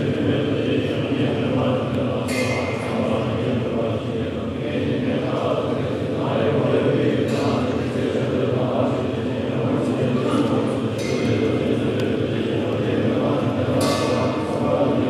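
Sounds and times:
monks chanting in low drone: 0:00.0 - 0:15.0.

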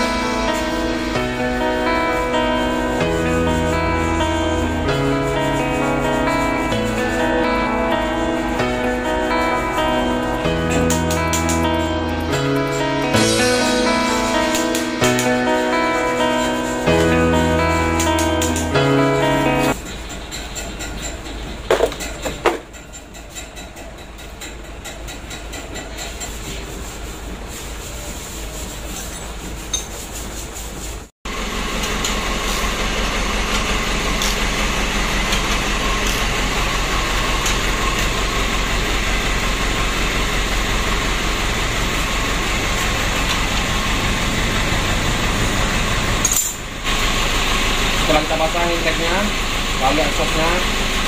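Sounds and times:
loud steady machine noise: 0:00.0 - 0:22.2, 0:31.3 - 0:51.0
metal hand tools clinking: 0:46.2 - 0:46.6.

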